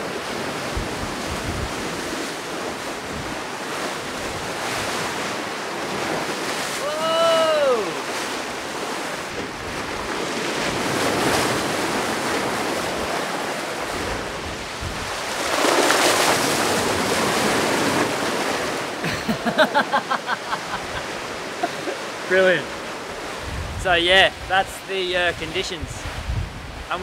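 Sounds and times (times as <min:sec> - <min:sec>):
wind buffeting microphone: 0:00.0 - 0:06.8, 0:07.4 - 0:18.8, 0:20.7 - 0:27.0
sea rushing along a hull: 0:00.0 - 0:27.0
person crying whoa: 0:06.7 - 0:08.0.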